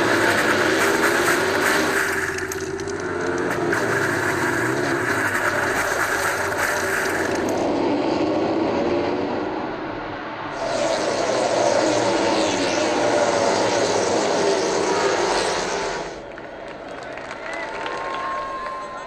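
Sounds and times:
motorcycle sliding through gravel: 0.0 - 7.6
high-revving motorcycle engines: 0.0 - 16.3.

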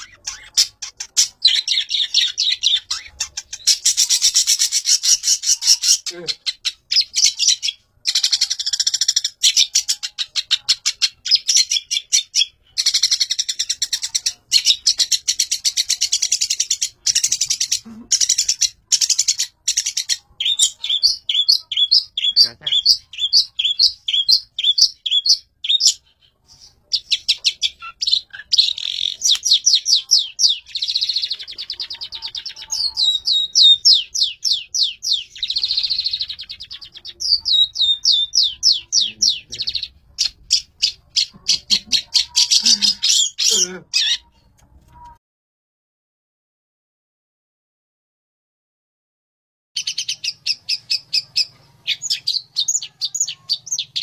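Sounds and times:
bird singing high chirps: 0.0 - 44.3, 49.8 - 54.0.

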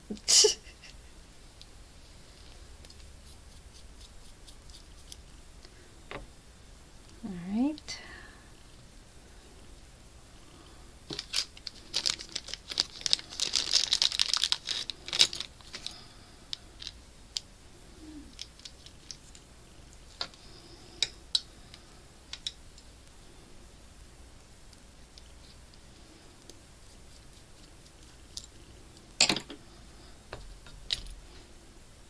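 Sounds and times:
plastic bag crinkling: 11.1 - 16.0.

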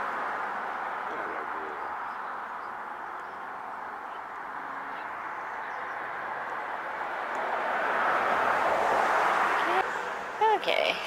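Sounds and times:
distant road traffic hum: 0.0 - 11.0.

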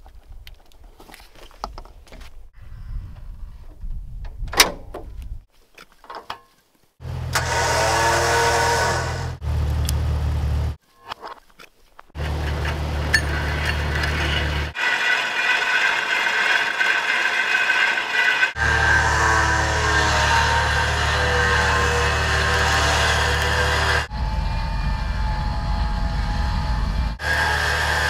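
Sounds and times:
electric winch motor whining: 7.2 - 9.4, 12.2 - 28.0.

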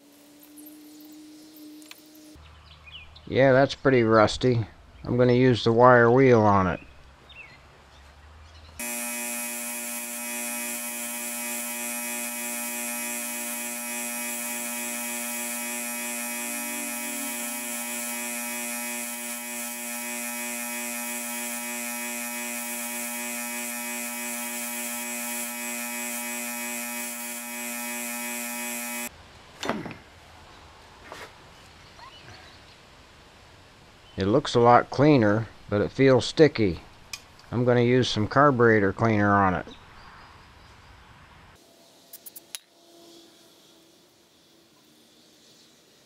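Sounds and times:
bench grinder wire wheel running: 8.8 - 29.1.

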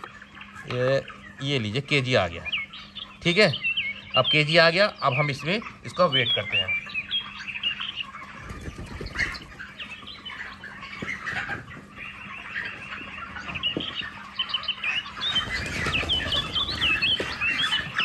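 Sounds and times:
chickens cheeping: 0.0 - 18.0
wing flapping and scuffling: 8.2 - 14.3, 15.0 - 18.0.

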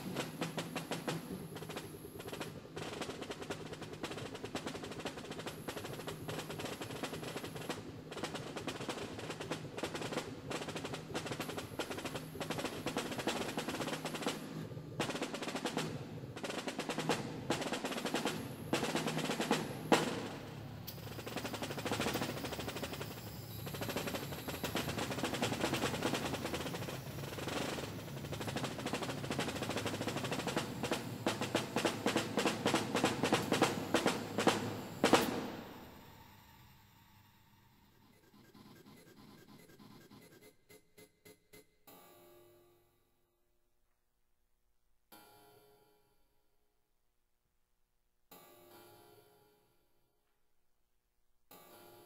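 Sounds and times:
snare drum rolls: 0.0 - 36.1.

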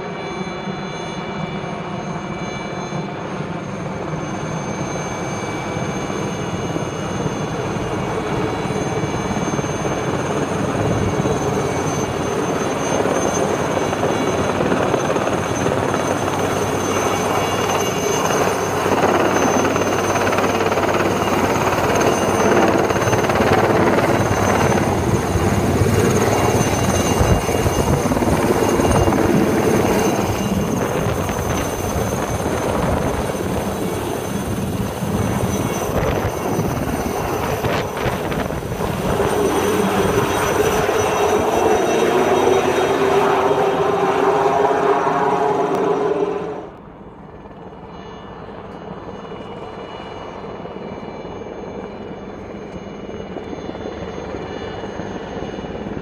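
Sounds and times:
helicopter rotor and turbine whine: 0.0 - 56.0.

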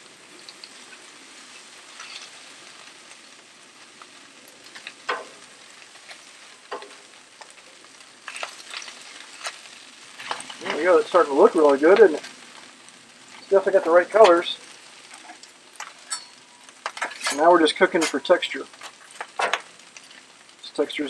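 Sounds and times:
fried rice sizzling on griddle: 0.0 - 21.0
metal spatula scraping griddle: 0.8 - 2.8, 8.3 - 11.0, 13.3 - 20.3.

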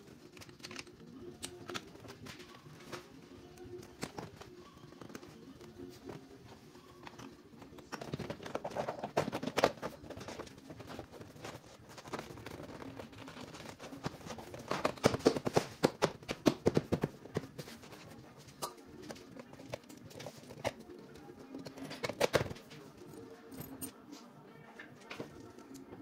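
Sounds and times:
plastic clips knocking and snapping: 7.0 - 17.7, 21.6 - 22.6.

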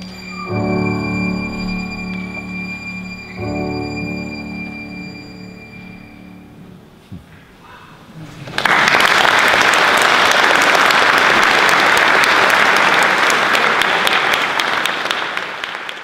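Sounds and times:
audience applause: 8.3 - 16.0.

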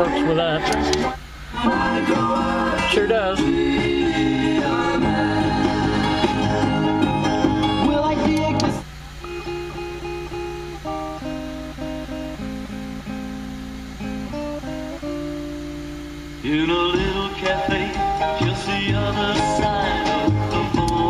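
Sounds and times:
band playing: 0.0 - 12.2, 16.4 - 21.0
loud song on car stereo: 0.0 - 21.0
plucked guitar melody: 1.8 - 21.0.

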